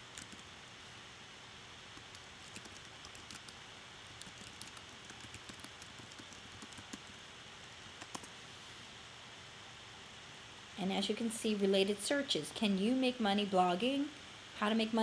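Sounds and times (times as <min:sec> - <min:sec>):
keyboard typing: 0:00.0 - 0:00.5, 0:02.0 - 0:08.4.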